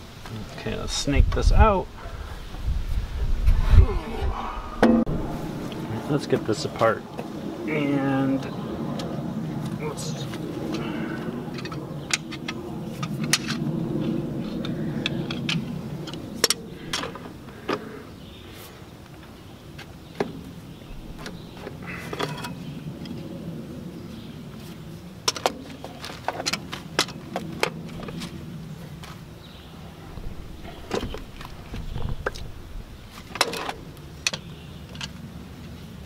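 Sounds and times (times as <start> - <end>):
low steady drone: 3.6 - 19.6.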